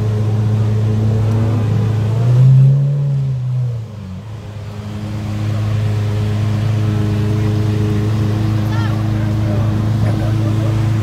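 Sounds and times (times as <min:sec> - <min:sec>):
sports car engine idling: 0:00.0 - 0:11.0.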